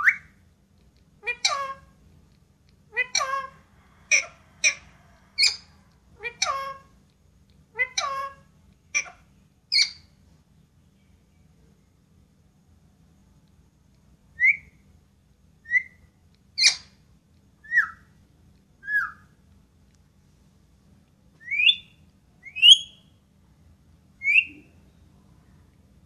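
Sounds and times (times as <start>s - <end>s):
parakeet whistled calls: 3.0s - 4.8s, 9.0s - 10.1s, 14.4s - 14.8s, 15.6s - 16.9s, 17.6s - 18.1s, 18.8s - 19.3s, 21.4s - 23.1s, 24.2s - 24.7s.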